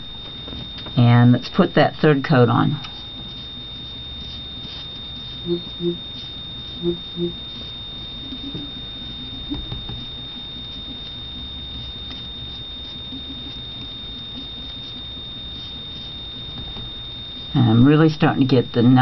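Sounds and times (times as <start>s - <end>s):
high-pitched whine: 0.0s - 19.0s
brush strokes on glass: 2.8s - 17.6s.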